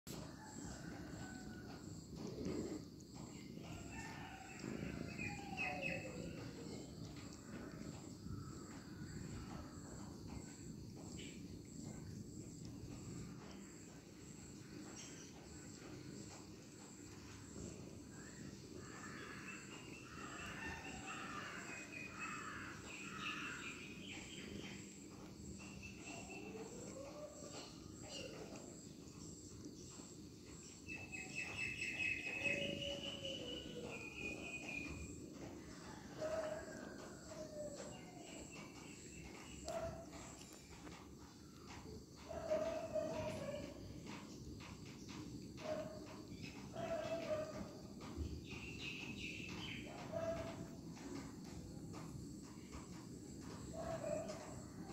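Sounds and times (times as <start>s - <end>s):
insects trilling: 0.1s - 54.9s
birds chirping: 3.2s - 9.5s, 17.6s - 28.6s, 29.2s - 40.8s, 42.2s - 51.6s.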